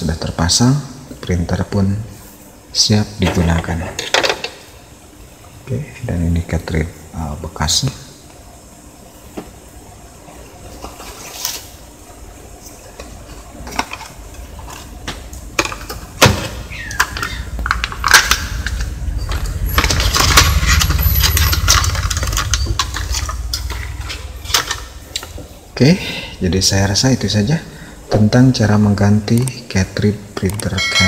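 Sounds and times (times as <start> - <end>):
plastic packaging crackling: 17.3 - 23.7.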